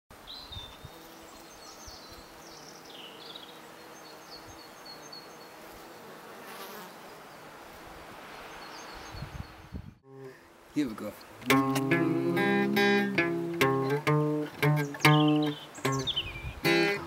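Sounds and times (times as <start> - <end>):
small birds chirping: 0.2 - 7.5, 8.4 - 10.0, 11.0 - 17.0
insect buzzing: 0.6 - 8.6, 11.5 - 17.0.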